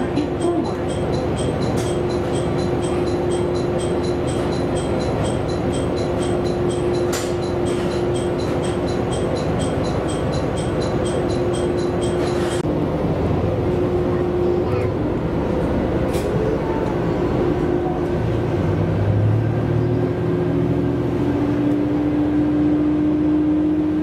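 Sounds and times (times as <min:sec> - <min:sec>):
railcar engine idling: 0:00.0 - 0:21.6.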